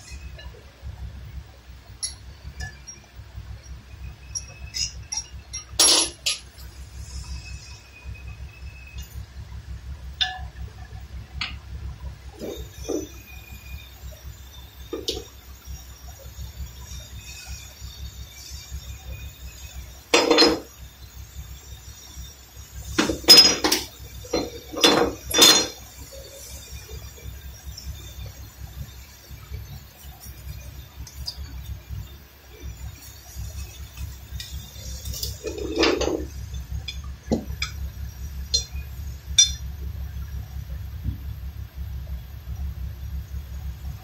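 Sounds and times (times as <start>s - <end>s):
metallic clinks of brake parts: 1.9s - 7.7s, 14.8s - 39.7s
metal tools clinking and clattering: 4.3s - 6.7s, 12.4s - 13.2s, 14.9s - 15.3s, 20.1s - 20.7s, 22.8s - 27.0s, 32.5s - 37.8s, 39.4s - 39.7s.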